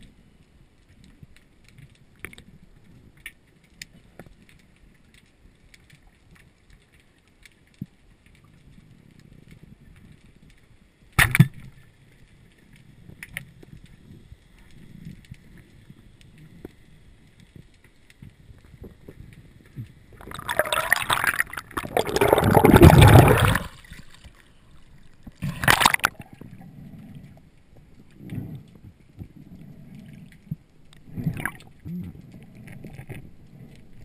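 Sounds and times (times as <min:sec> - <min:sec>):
faint clicks: 0:00.0 - 0:20.2
muffled underwater rumble: 0:12.2 - 0:34.0.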